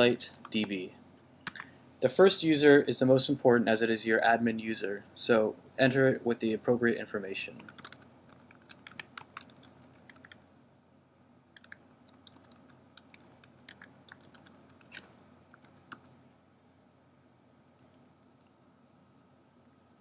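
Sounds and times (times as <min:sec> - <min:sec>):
typing on computer keyboard: 0:07.6 - 0:10.4, 0:11.6 - 0:16.1, 0:17.7 - 0:17.9.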